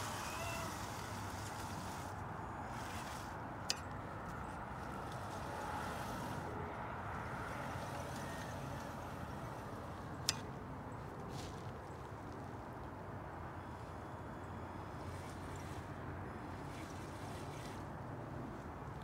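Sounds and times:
rc car crunching through leaves: 0.0 - 3.4, 4.6 - 10.4.

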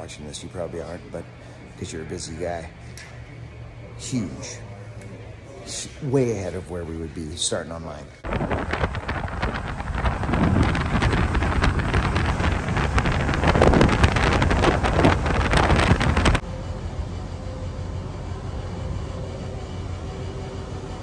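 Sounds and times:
steady hum: 0.0 - 21.0
wind buffeting microphone: 8.2 - 16.4
vehicle road noise: 8.2 - 18.7.

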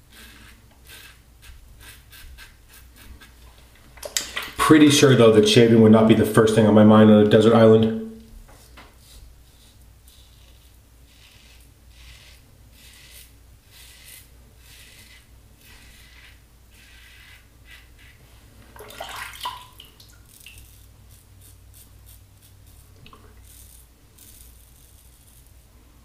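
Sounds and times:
razor scraping stubble: 0.1 - 3.5, 8.5 - 18.2, 20.3 - 25.6.

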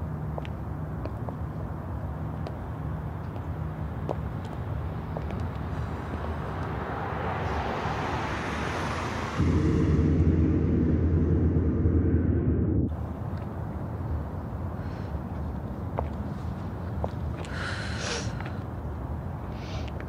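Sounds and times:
low street hum: 0.0 - 20.0
car approaching: 4.0 - 14.3
car driving through tunnel: 6.0 - 13.2.

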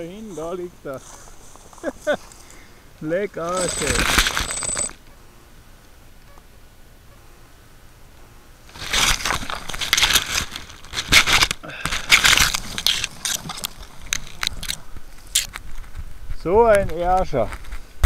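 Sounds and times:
grass and plastic rustling on microphone: 0.0 - 5.1, 8.6 - 18.0.

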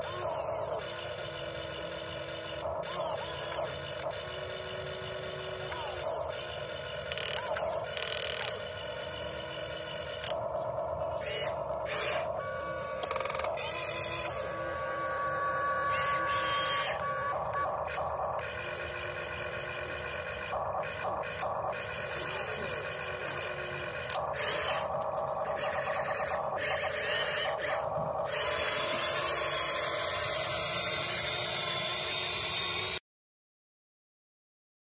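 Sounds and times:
toy excavator motors whining: 0.0 - 33.0
sharp clicks: 13.0 - 13.6, 20.5 - 21.8, 24.0 - 25.8.

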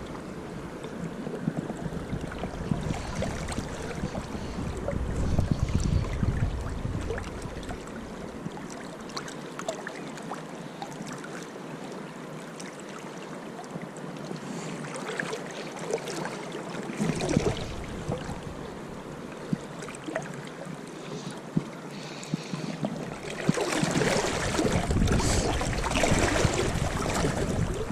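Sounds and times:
wind buffeting microphone: 0.0 - 8.6, 17.0 - 19.7, 22.3 - 27.9
small water splashes: 0.8 - 27.9
river water running fast: 14.4 - 27.9.

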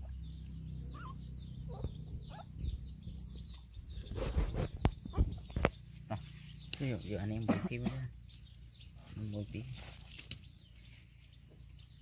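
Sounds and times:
high peeping chirps: 0.0 - 12.0
crackling rustle: 8.9 - 11.9.

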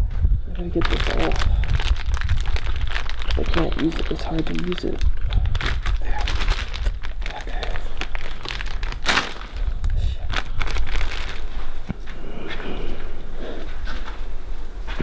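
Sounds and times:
low rumble: 0.0 - 15.0
plastic bag crinkling: 0.6 - 11.9.

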